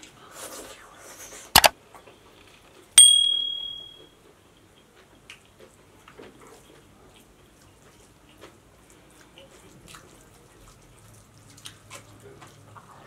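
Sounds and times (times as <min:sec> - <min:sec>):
bright bell ding: 0:03.0 - 0:04.0
faint chewing sounds: 0:05.0 - 0:13.0.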